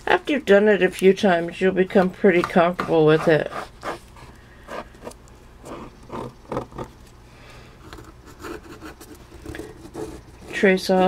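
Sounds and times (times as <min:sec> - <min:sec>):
pen scratching on paper: 0:07.9 - 0:10.8.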